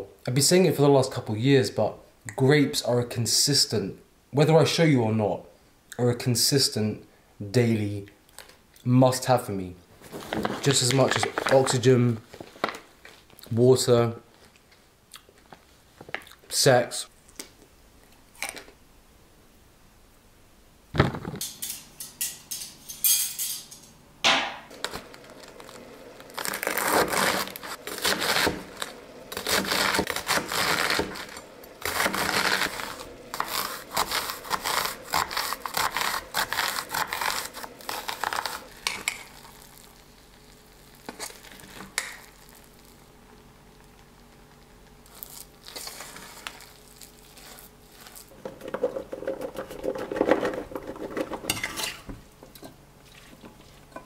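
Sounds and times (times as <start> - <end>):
rustling of packaging: 10.0 - 13.4, 24.7 - 43.0, 44.0 - 51.3
dishes and cutlery clattering: 21.4 - 24.0, 50.2 - 52.8
sharp knock: 24.2 - 24.7.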